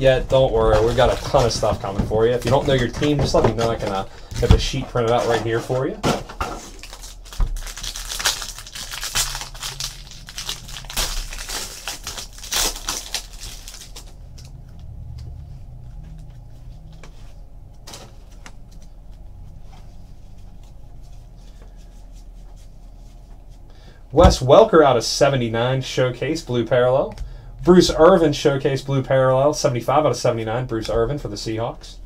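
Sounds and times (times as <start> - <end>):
foil wrappers tearing and crinkling: 0.6 - 2.9, 6.6 - 14.5.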